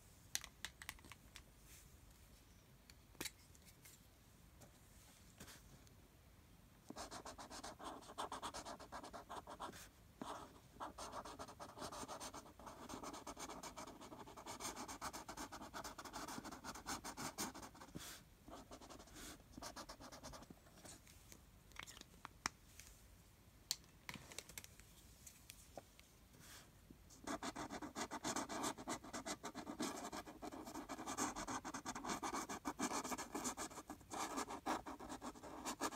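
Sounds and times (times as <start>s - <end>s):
marker scribbling on paper: 7.0s - 20.9s, 27.2s - 35.9s.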